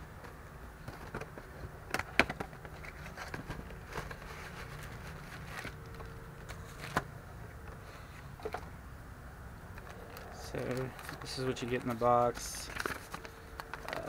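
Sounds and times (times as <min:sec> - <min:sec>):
cardboard and plastic crinkling: 0:00.8 - 0:07.1, 0:09.8 - 0:14.0.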